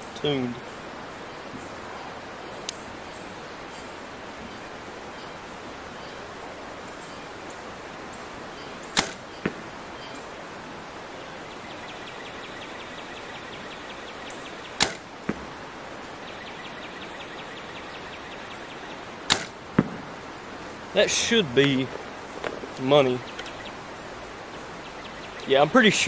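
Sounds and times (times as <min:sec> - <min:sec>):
arrow striking target: 0:09.0 - 0:09.6, 0:14.8 - 0:15.4, 0:19.3 - 0:20.0
bow string snapping: 0:09.0 - 0:09.6, 0:14.8 - 0:15.1, 0:19.3 - 0:19.6.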